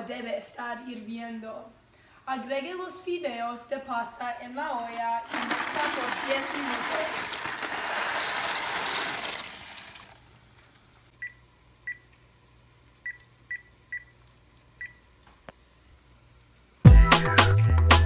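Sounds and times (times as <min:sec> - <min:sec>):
dry pasta pouring into water: 0:05.0 - 0:11.0
microwave keypad beeps: 0:11.2 - 0:12.1, 0:13.0 - 0:14.2.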